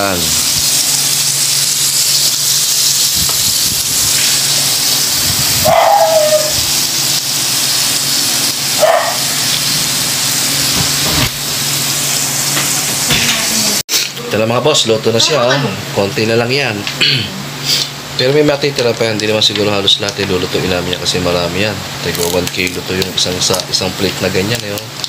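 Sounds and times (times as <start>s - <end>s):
meat sizzling on grill: 0.0s - 25.0s
short high-pitched cries: 5.7s - 6.6s.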